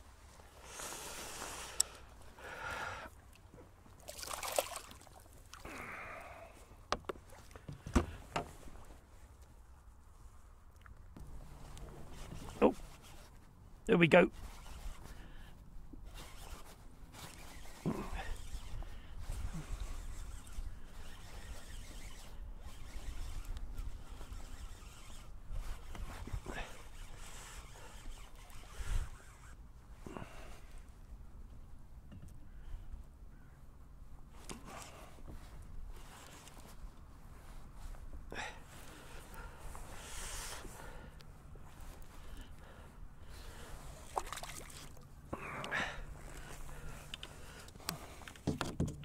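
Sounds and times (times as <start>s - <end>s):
water splashing and trickling: 3.2s - 5.9s, 43.9s - 45.1s.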